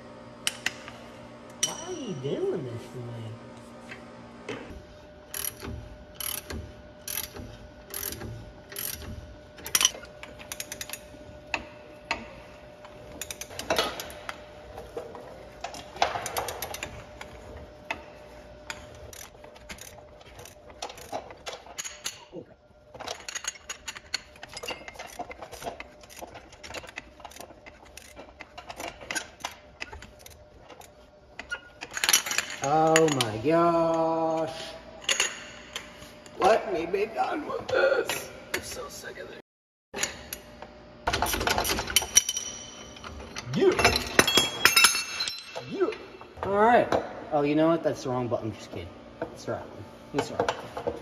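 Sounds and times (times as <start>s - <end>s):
hand ratchet clicking: 5.3s - 11.0s.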